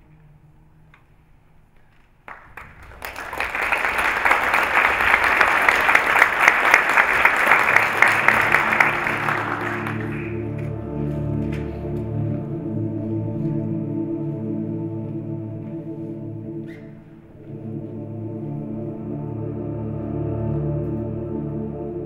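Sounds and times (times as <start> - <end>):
audience applauding: 2.2 - 10.7
music: 5.3 - 22.0.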